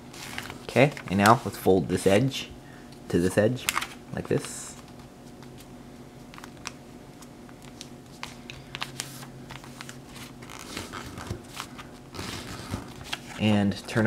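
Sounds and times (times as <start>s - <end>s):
faint steady hum: 0.0s - 14.0s
paper rustling and crackling: 0.1s - 2.3s, 7.6s - 14.0s.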